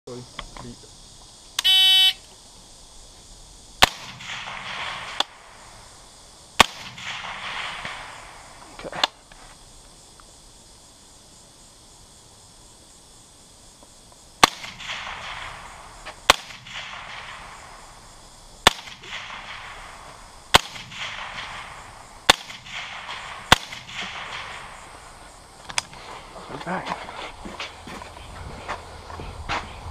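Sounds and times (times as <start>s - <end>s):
rifle shots with echo: 3.8s - 5.8s, 6.6s - 8.7s, 14.4s - 25.3s.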